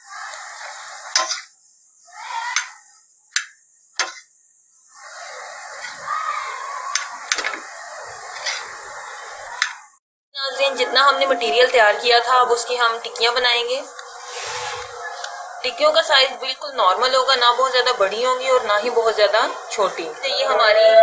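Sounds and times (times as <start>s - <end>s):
potato sizzling in oil: 0.0s - 9.9s.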